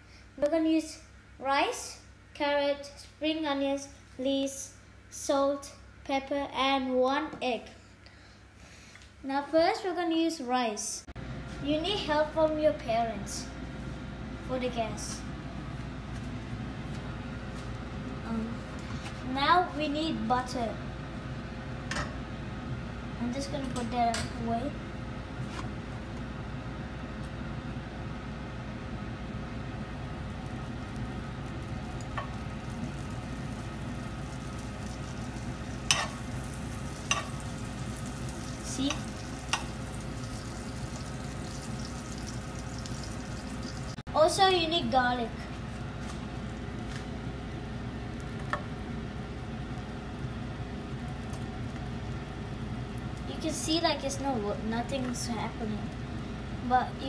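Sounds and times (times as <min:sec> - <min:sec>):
gas hob hissing: 0:29.9 - 0:44.0
butter sizzling in frying pan: 0:30.0 - 0:44.0.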